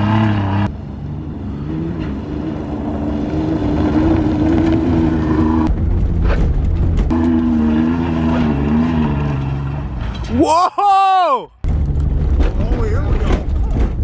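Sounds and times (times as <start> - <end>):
car engine at high revs: 0.0 - 10.2.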